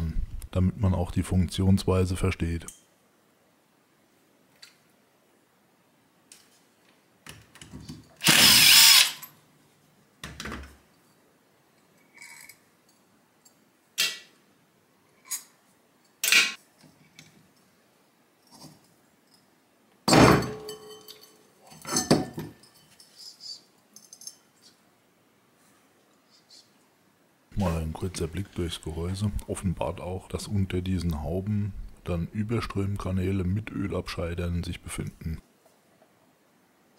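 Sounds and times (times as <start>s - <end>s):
cordless drill whirring: 8.2s - 9.2s.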